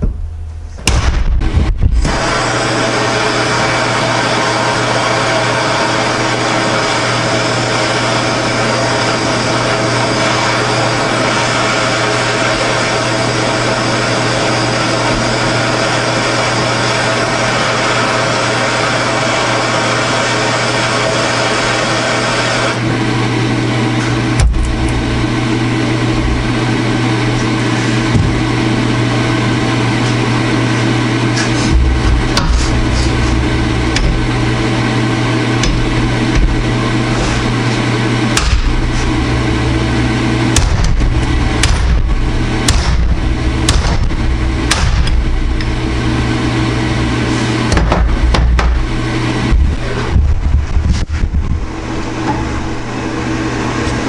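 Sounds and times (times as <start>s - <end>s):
sharp knock: 0.0s - 2.0s
low hum: 0.0s - 19.6s, 22.7s - 54.0s
gas torch hissing: 1.8s - 22.8s, 29.9s - 47.8s.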